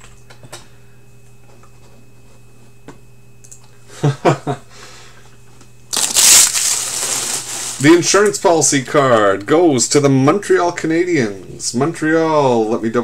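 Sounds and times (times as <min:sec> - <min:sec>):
low room hum: 0:00.0 - 0:13.0
plastic wrapper crinkling: 0:05.9 - 0:08.1.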